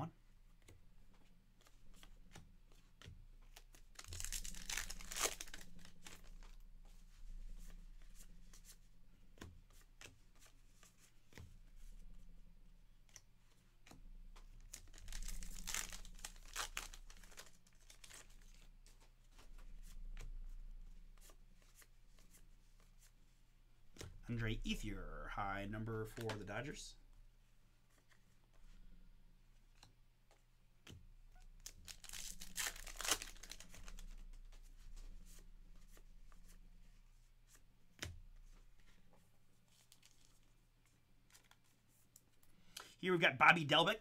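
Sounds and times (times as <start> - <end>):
cards ticking and sliding: 0.6 - 12.2, 12.9 - 20.5, 26.0 - 26.5, 29.6 - 36.6, 37.5 - 43.0
wrappers torn and crinkled: 3.8 - 6.3, 14.7 - 18.5, 31.6 - 34.1.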